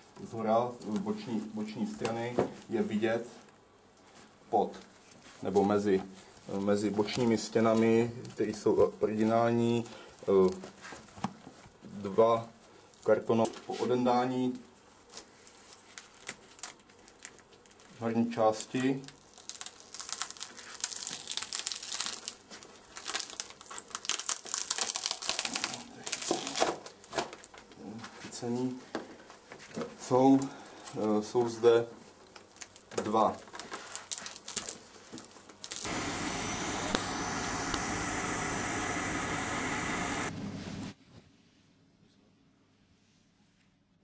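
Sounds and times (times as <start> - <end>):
cardboard crackling and rustling: 19.2 - 27.8, 32.0 - 36.0
train carriage mechanical hum: 35.9 - 41.0.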